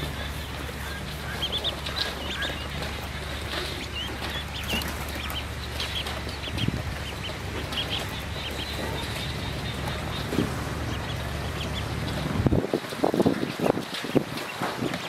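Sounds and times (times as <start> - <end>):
ducklings peeping: 0.0 - 15.0.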